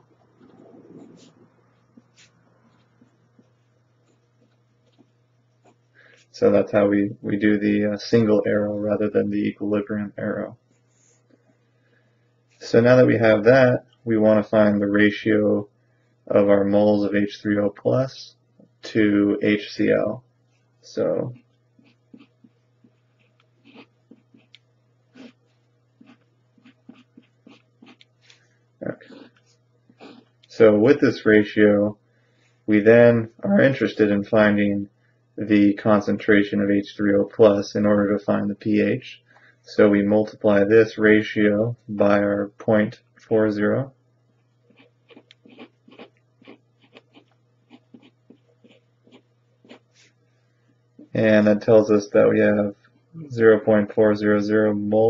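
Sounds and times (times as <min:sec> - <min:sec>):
faint low hum: 0:00.0 - 0:55.0
marker scratching on paper: 0:21.3 - 0:24.6, 0:26.0 - 0:28.0.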